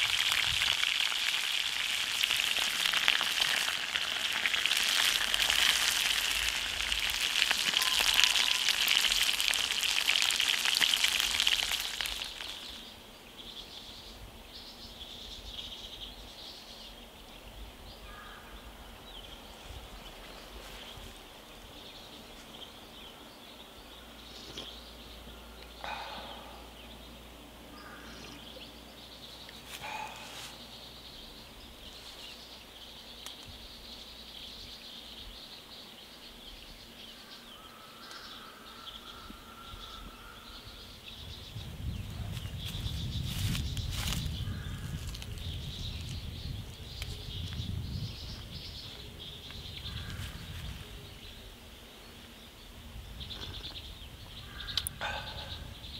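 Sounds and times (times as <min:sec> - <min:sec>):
fish sizzling in oil: 0:00.0 - 0:12.8
bird chirps: 0:07.3 - 0:10.8, 0:21.8 - 0:51.5, 0:53.1 - 0:55.9.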